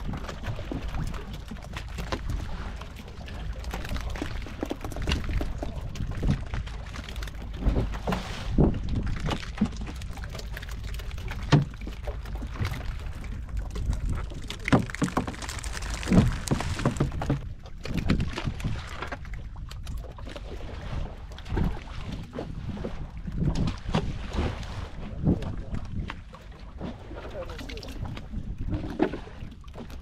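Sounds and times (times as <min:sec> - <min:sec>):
water slapping against boat hull: 0:00.0 - 0:30.0
steady low rumble: 0:10.6 - 0:18.1
fish thudding on deck: 0:13.8 - 0:17.5.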